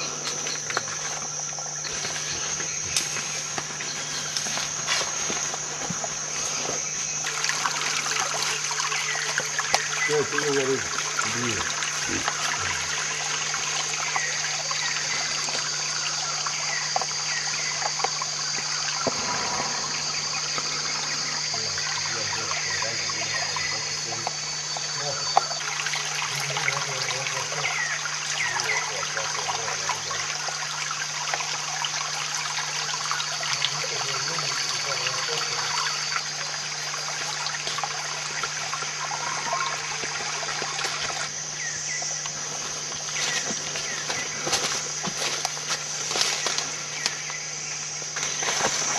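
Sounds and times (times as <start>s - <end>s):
stream trickling over rocks: 0.0s - 19.1s, 20.2s - 48.9s
high-pitched whine: 14.2s - 30.3s.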